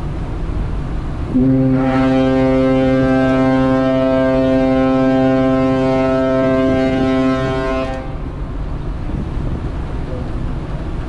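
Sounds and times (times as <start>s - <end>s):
deep ship's horn blast: 1.2s - 8.5s
wind on microphone: 6.0s - 11.0s.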